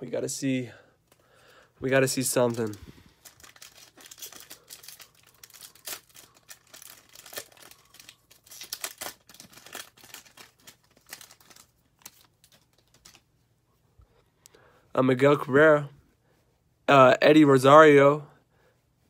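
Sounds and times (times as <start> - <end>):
foil wrapper tearing and crinkling: 2.2 - 13.2.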